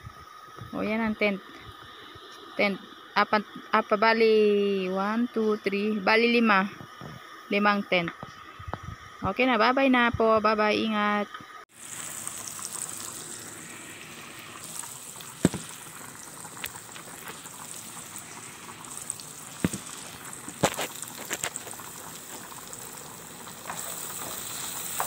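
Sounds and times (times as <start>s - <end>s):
food sizzling in pans: 11.7s - 25.0s.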